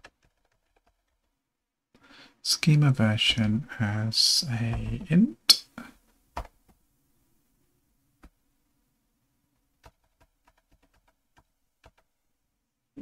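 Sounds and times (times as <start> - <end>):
faint keyboard keystrokes: 9.8 - 12.1.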